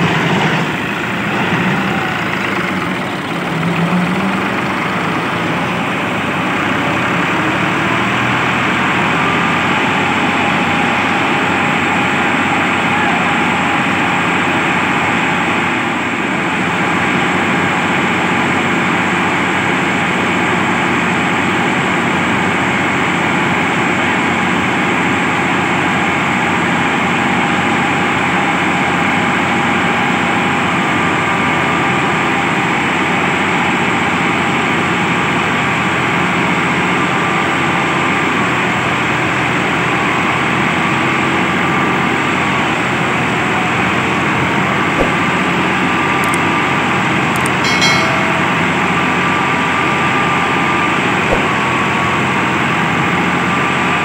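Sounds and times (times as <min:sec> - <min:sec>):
diesel tractor engine working hard: 0:00.0 - 0:21.9.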